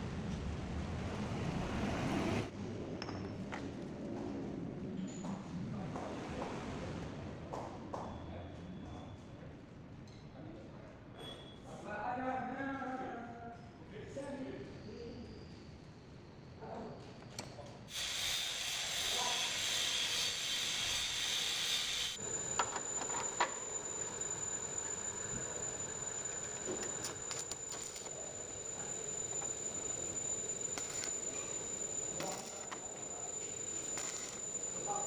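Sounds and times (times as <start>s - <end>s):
arc welding hiss and crackle: 17.9s - 22.3s, 25.8s - 28.2s, 28.8s - 35.0s
high whine: 22.1s - 35.0s.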